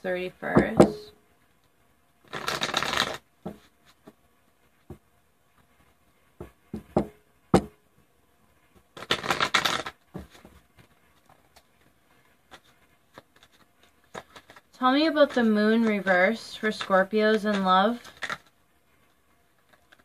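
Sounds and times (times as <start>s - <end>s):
cards shuffling: 2.3s - 4.2s, 8.9s - 18.6s, 19.5s - 20.0s.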